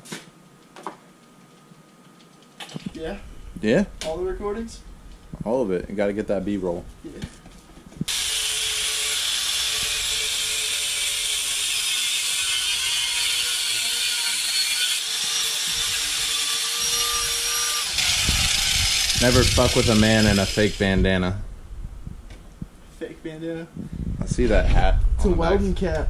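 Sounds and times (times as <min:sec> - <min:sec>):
angle grinder cutting metal: 0:08.1 - 0:21.1.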